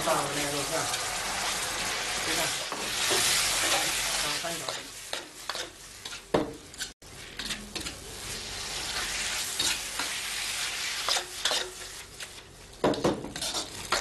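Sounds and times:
food sizzling in a wok: 0:00.0 - 0:14.0
metal ladle scraping wok: 0:02.7 - 0:12.4, 0:13.3 - 0:14.0.

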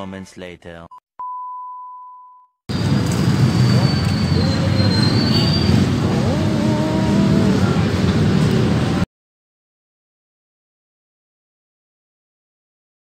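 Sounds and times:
heavy street rumble: 0:02.7 - 0:09.1.

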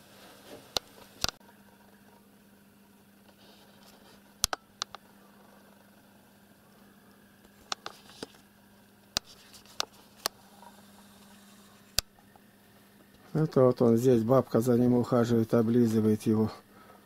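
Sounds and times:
faint steady hum: 0:00.0 - 0:17.0
quiet sharp clicks and taps: 0:04.4 - 0:05.0.

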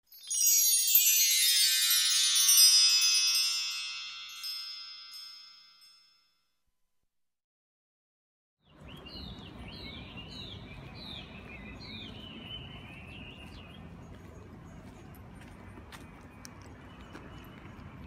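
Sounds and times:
small bird chirping: 0:08.6 - 0:15.2
outdoor background noise: 0:08.6 - 0:18.0.

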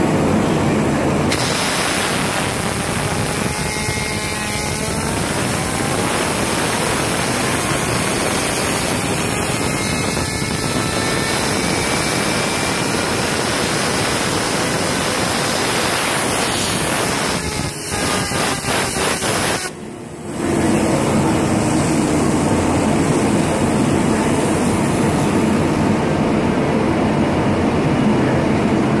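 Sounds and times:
compressed air blow gun hissing: 0:01.3 - 0:19.8.

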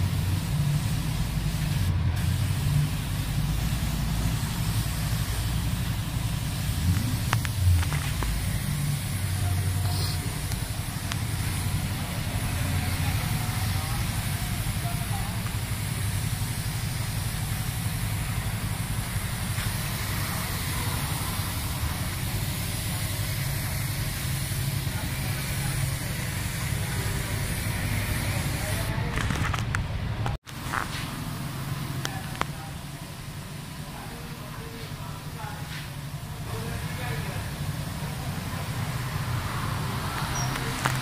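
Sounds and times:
low steady rumble: 0:00.0 - 0:25.0
paint spray gun hissing: 0:00.0 - 0:29.0, 0:30.5 - 0:41.0.

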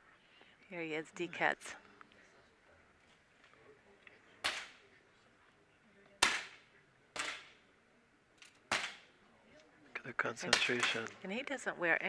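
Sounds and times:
air pistol shots: 0:06.2 - 0:06.6.

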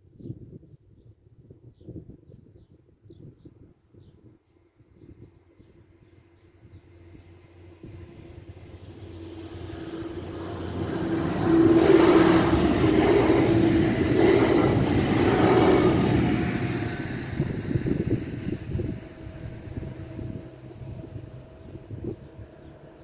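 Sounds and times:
diesel train passing: 0:05.9 - 0:23.0
high whine dropping in pitch: 0:07.8 - 0:22.6.

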